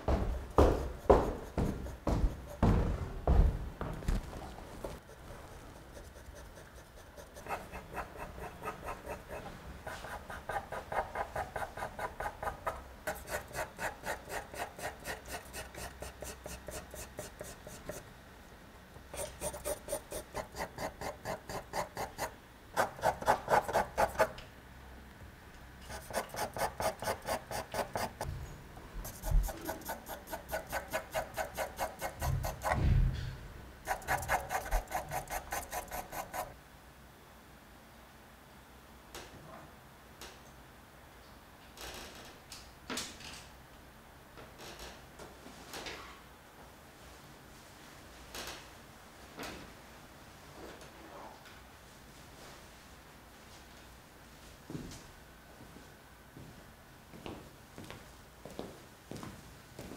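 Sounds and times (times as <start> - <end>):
pencil scratching on paper: 0.6 - 2.6, 5.0 - 18.0, 19.2 - 24.3, 25.9 - 28.3, 29.0 - 32.8, 33.8 - 36.5.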